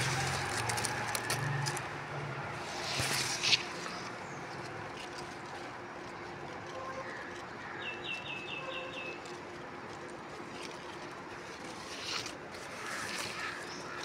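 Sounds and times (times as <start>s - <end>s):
steady outdoor hiss: 0.0s - 14.0s
birds chirping: 6.9s - 9.4s.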